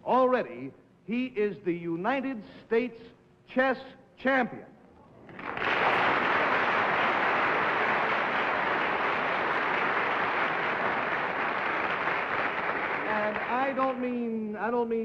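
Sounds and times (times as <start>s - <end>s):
audience applauding: 5.3s - 14.2s.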